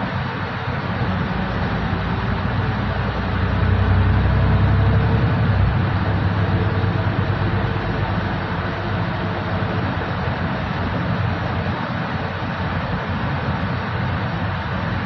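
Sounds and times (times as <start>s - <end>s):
bus engine: 0.0s - 15.0s
road noise: 0.0s - 15.0s.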